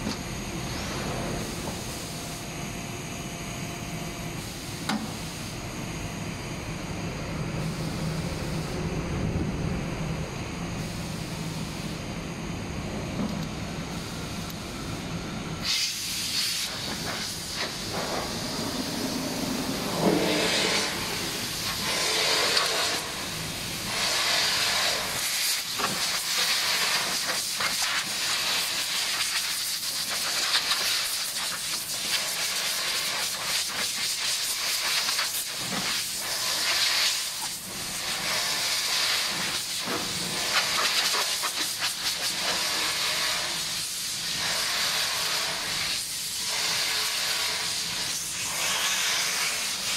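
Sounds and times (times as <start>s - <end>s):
compressed air blow gun hissing: 15.6s - 49.9s.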